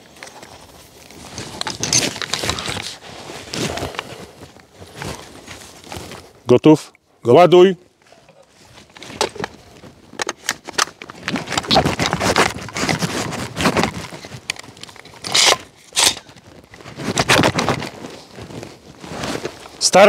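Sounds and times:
rifle loading clicks and scraping: 1.3s - 3.0s, 8.2s - 17.8s.

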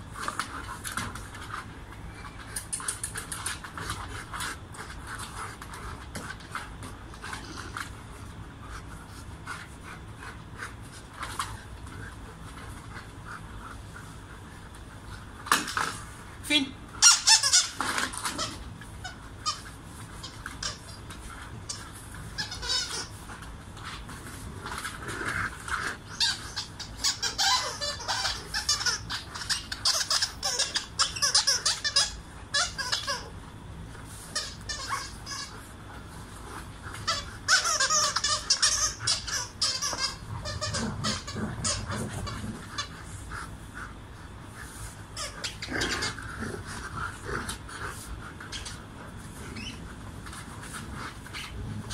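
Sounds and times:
squeaky dog toy squeaking: 17.0s - 17.8s, 22.4s - 23.1s, 26.1s - 33.3s, 34.4s - 35.6s, 37.1s - 41.9s.

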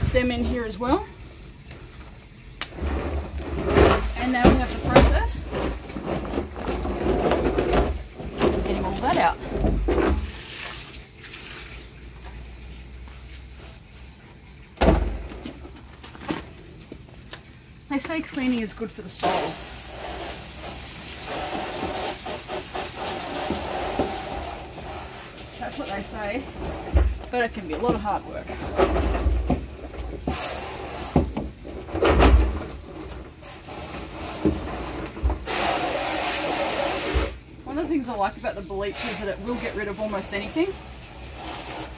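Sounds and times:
water sloshing and draining: 0.0s - 41.9s
plastic drum thump: 14.8s - 15.7s.

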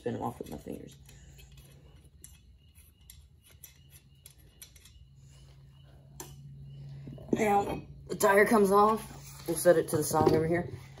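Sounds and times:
wheel nuts clicking metallically: 0.0s - 5.6s
low steady hum: 0.0s - 11.0s.

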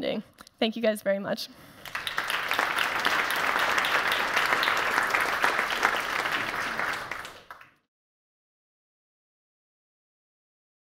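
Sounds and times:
audience applauding: 1.8s - 7.8s.

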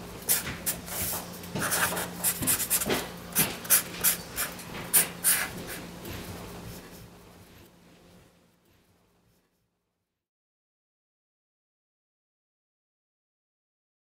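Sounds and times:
marker scratching on paper: 0.3s - 5.9s.

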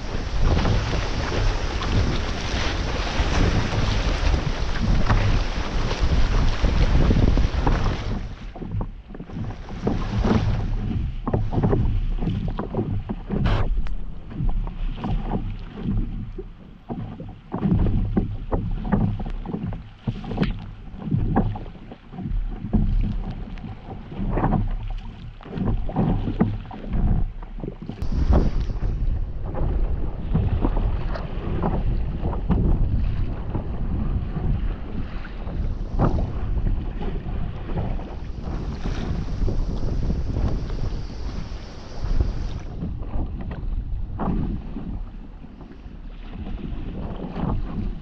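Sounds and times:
paddle strokes in water: 0.0s - 48.0s
water lapping against board: 0.0s - 48.0s
wind buffeting microphone: 0.0s - 48.0s.

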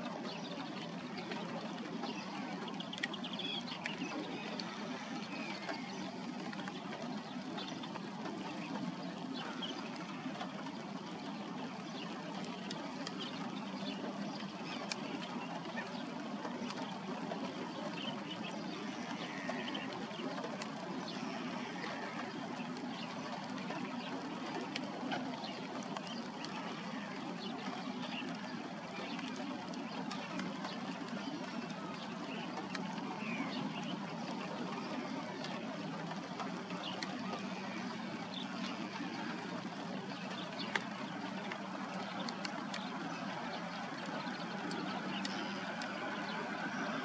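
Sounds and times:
rain pattering on water: 0.0s - 47.0s
faint bird calls: 0.1s - 47.0s.

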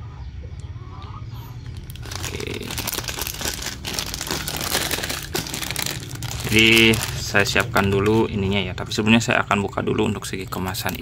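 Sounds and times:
plastic packet crinkling: 1.6s - 8.4s.

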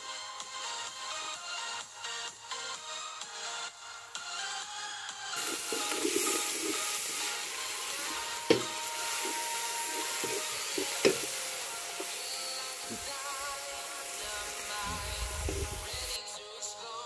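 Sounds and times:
wooden stick scraping a pot: 5.4s - 13.2s
meat sizzling in a pot: 5.4s - 16.2s
stick knocking against a pot: 8.0s - 11.4s.

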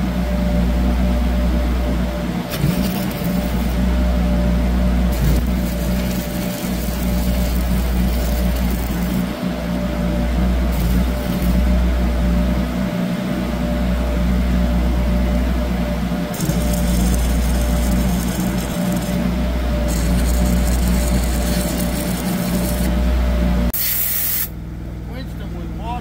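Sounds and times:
steady engine drone: 0.0s - 23.8s, 24.4s - 26.0s
welder arc crackling: 2.5s - 4.0s, 5.1s - 9.8s, 10.7s - 11.8s, 16.3s - 22.9s.

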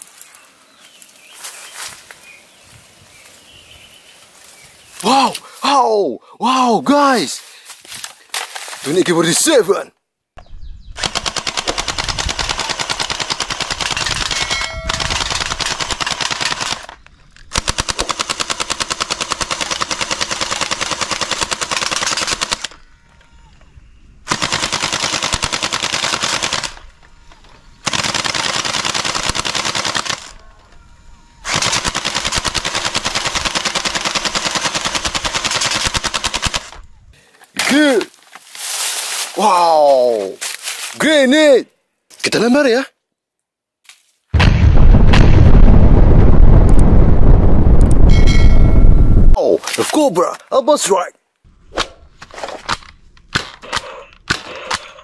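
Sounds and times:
toy rifles firing full-auto: 11.0s - 22.8s, 24.3s - 26.8s, 27.8s - 30.4s, 31.5s - 36.7s.

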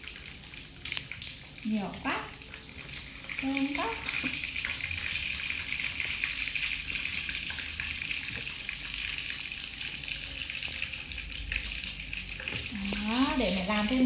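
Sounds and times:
oil sizzling in a frying pan: 0.0s - 14.0s
small crackles: 0.5s - 1.4s.

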